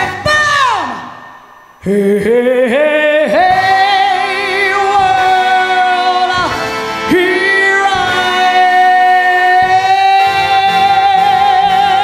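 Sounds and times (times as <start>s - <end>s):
live band playing: 3.4s - 12.0s.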